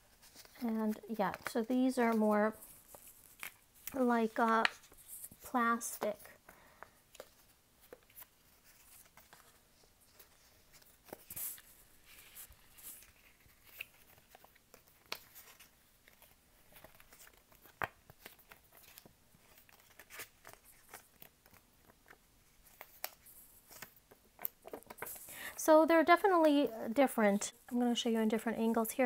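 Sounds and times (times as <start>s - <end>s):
paper sheets crinkling: 7.1s - 25.3s.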